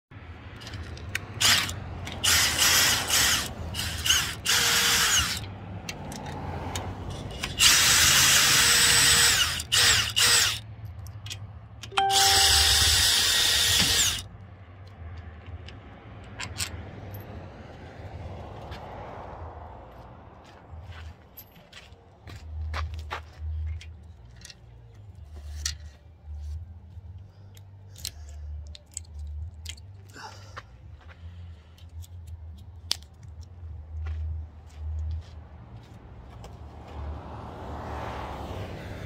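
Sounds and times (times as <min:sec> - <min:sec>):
cordless drill driving bolts: 0:01.4 - 0:05.4, 0:07.4 - 0:10.6, 0:12.1 - 0:14.3.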